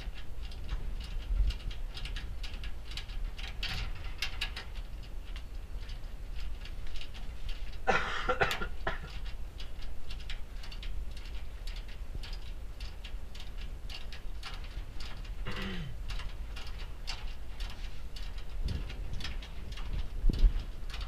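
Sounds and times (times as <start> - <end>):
steady low hum: 0.0 - 21.0
metallic clicks and taps: 8.4 - 15.5.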